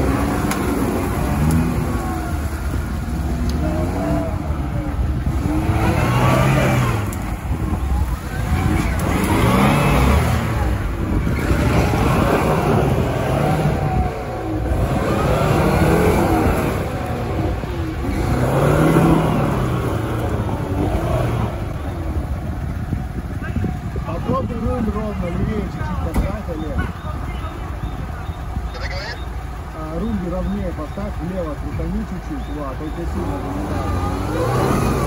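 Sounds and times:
car engine revving: 0:00.0 - 0:35.0.

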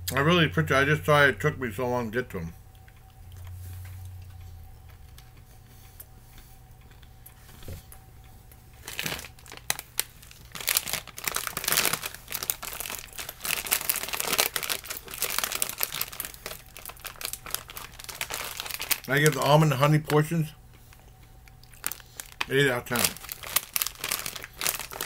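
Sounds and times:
plastic snack bag crinkling: 0:08.8 - 0:20.3, 0:20.9 - 0:25.0.

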